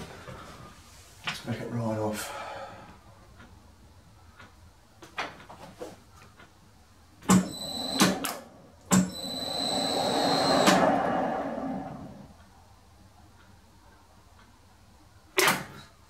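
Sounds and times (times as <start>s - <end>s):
high steady whine: 7.4s - 12.6s
lathe running: 9.0s - 12.3s.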